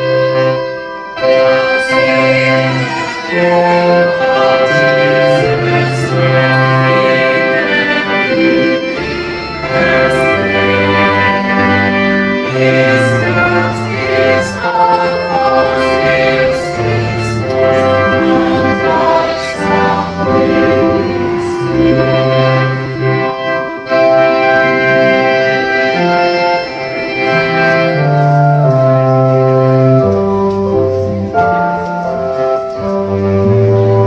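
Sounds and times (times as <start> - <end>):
held chords: 0.0 - 34.0
bass line: 8.3 - 25.4.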